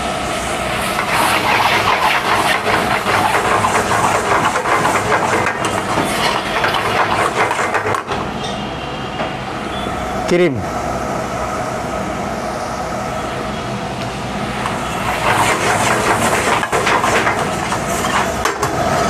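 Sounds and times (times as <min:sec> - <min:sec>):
ladle stirring and scraping in pan: 0:00.8 - 0:08.0, 0:14.9 - 0:18.5.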